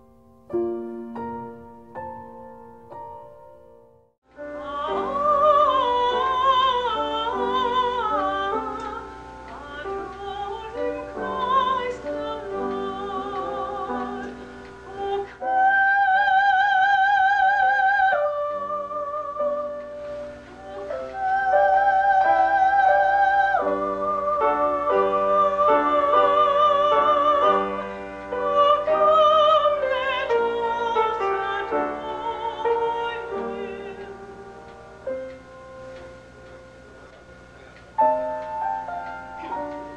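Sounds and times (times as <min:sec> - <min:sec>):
piano accompaniment: 0:00.0 - 0:39.9
woman singing operatically: 0:04.4 - 0:34.7.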